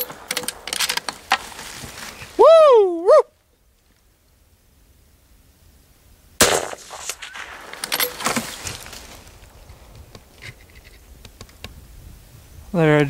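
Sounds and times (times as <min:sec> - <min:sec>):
knocks and rattles: 0:00.0 - 0:02.0, 0:07.6 - 0:11.7
loud gunshot: 0:06.4 - 0:08.4.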